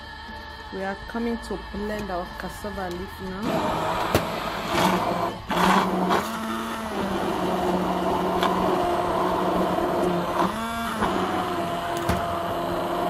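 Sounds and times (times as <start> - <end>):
kitchen blender running: 3.4 - 13.0.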